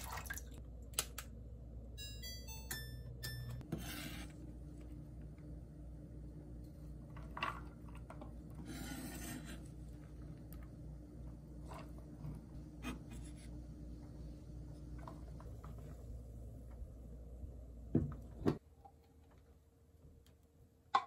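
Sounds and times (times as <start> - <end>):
knife scraping across board: 3.7 - 4.4, 8.7 - 9.7.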